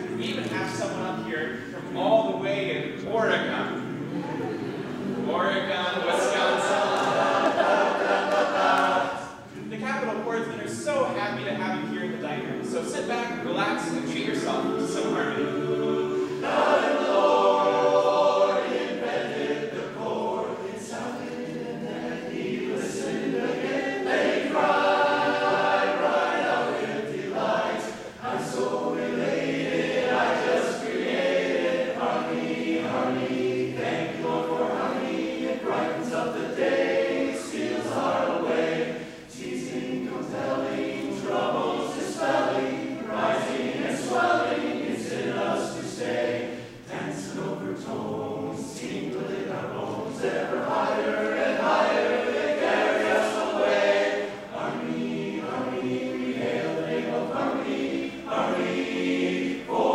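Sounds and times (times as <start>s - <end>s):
men's chorus singing a cappella: 3.6s - 9.8s, 11.8s - 59.9s
singers breathing: 38.9s - 39.3s.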